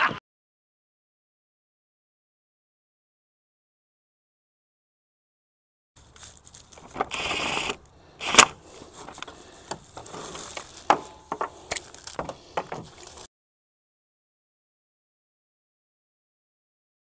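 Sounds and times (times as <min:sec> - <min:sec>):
short rasp: 0:06.2 - 0:13.3.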